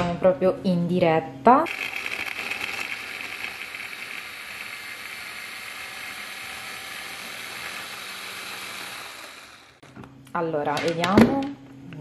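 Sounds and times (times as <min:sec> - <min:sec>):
hand blender motor whirring: 0:01.6 - 0:09.8.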